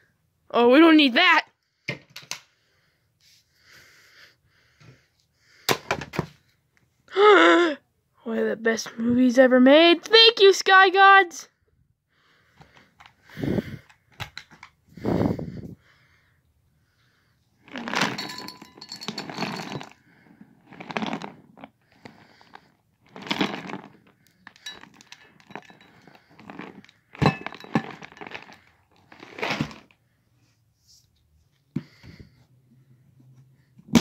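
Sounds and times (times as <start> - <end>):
cereal pouring into a bowl: 17.7 - 20.0, 20.6 - 29.9.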